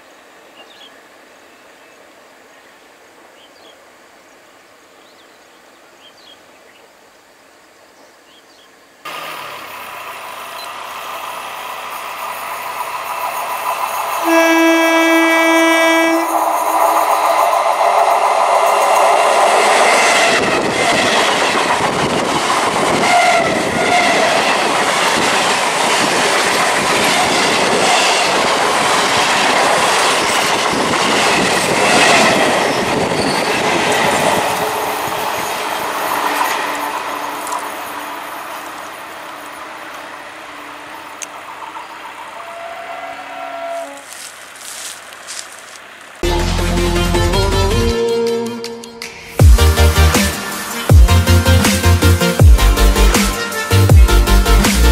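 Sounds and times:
train rushing past: 0:09.1 - 0:54.9
train horn: 0:14.2 - 0:16.5, 0:22.9 - 0:24.5, 0:42.4 - 0:44.3, 0:46.4 - 0:49.3.

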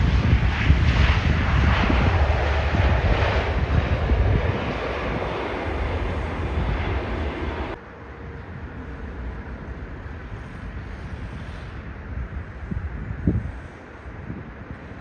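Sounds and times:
jet airliner engine rumble: 0:00.0 - 0:15.0
steady background noise: 0:05.6 - 0:15.0.

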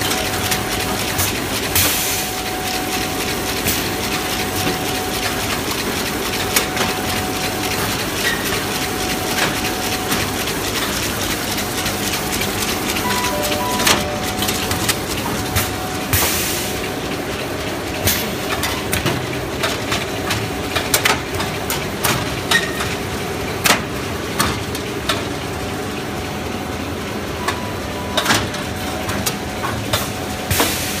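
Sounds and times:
sharp machine clacks and knocks: 0:00.0 - 0:23.0
bag making machine running: 0:00.0 - 0:31.0.

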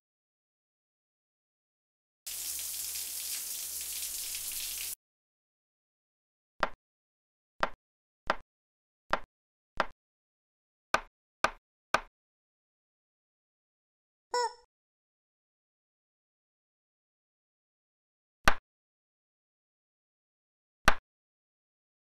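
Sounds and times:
knife chopping on plastic board: 0:09.1 - 0:10.0, 0:11.0 - 0:12.1.

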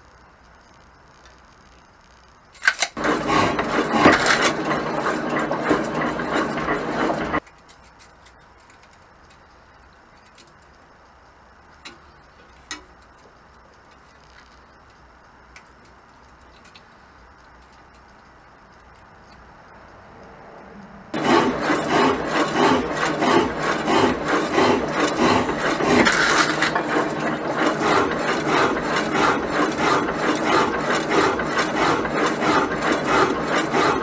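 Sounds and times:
steel bar scraping against metal: 0:21.2 - 0:34.0.

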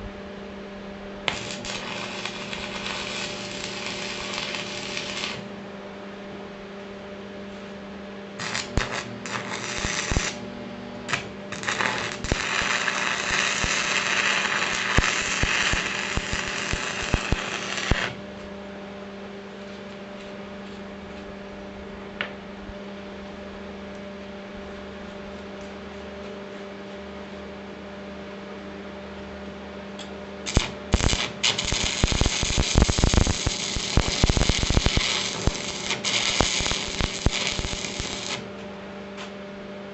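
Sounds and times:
electrical hum: 0:00.0 - 0:39.9
arc welding crackling: 0:01.2 - 0:05.6, 0:08.4 - 0:10.5, 0:11.1 - 0:18.2, 0:30.4 - 0:38.5.

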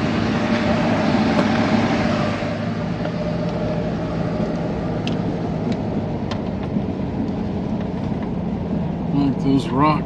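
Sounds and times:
vehicle engine and road noise: 0:00.0 - 0:10.0.

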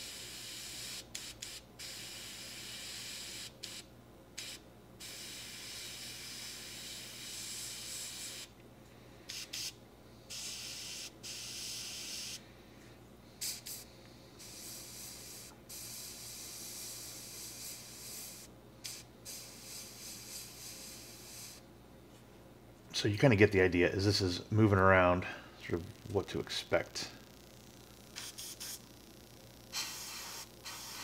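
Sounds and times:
airbrush spraying hiss: 0:04.4 - 0:08.5, 0:09.3 - 0:12.4, 0:13.4 - 0:21.6, 0:28.2 - 0:28.8, 0:29.7 - 0:31.0
airbrush short puffs: 0:09.3 - 0:12.4, 0:13.4 - 0:21.6, 0:28.2 - 0:28.8, 0:29.7 - 0:31.0.

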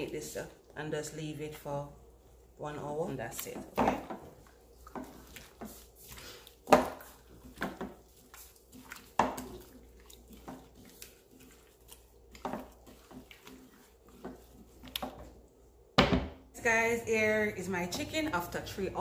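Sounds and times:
wet squishing of meat: 0:04.2 - 0:15.9.

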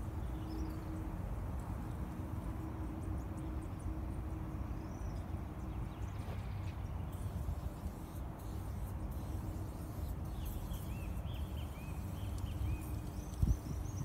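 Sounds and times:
small birds chirping: 0:04.8 - 0:14.0.

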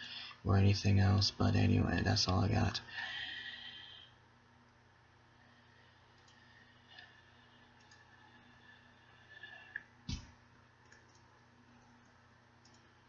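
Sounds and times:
faint hum: 0:00.0 - 0:13.0
faint clicks: 0:06.1 - 0:07.1, 0:07.8 - 0:08.1, 0:09.7 - 0:12.9.

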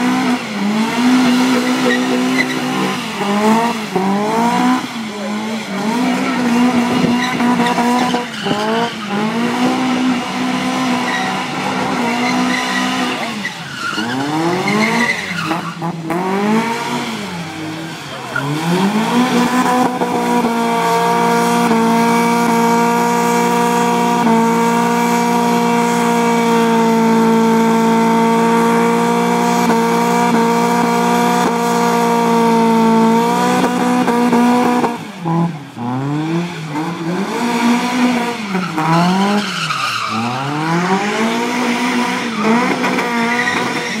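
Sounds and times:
car engine revving: 0:00.0 - 0:44.0
tyre squeal: 0:01.2 - 0:03.0, 0:06.6 - 0:09.1, 0:10.9 - 0:16.0, 0:38.4 - 0:40.6, 0:42.3 - 0:44.0.

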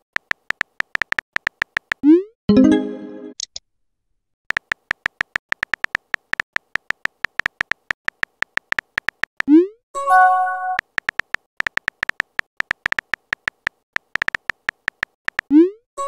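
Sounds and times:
phone keyboard typing beeps: 0:04.5 - 0:15.6.

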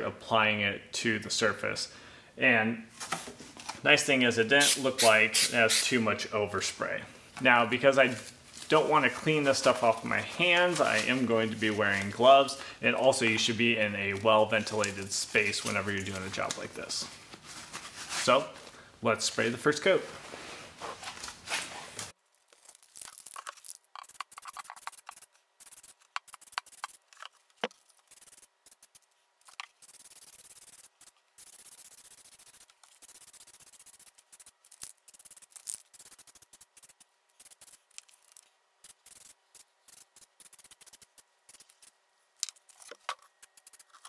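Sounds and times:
aerosol can spraying hiss: 0:04.6 - 0:05.9.

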